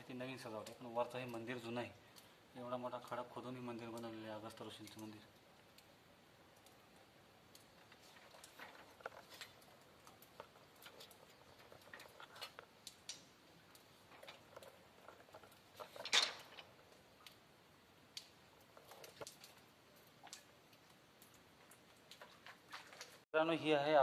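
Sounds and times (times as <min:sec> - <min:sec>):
faint clicks and scuffs: 0:07.5 - 0:16.5.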